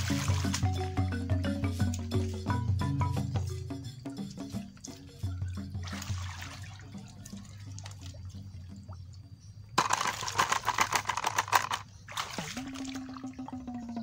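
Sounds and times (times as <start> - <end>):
water splashing through bamboo sieve: 0.0 - 1.1, 3.3 - 9.0, 9.8 - 13.6.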